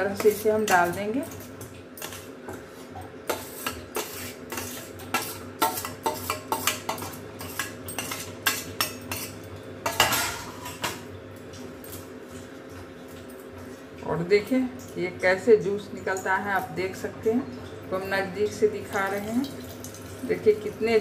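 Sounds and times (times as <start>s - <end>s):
metal spoon scraping a steel plate: 3.3s - 10.8s.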